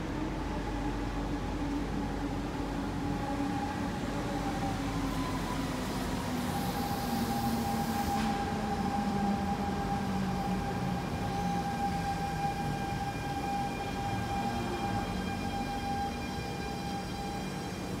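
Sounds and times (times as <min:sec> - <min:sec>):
train drive whine: 0:00.0 - 0:18.0
hiss: 0:06.4 - 0:08.6.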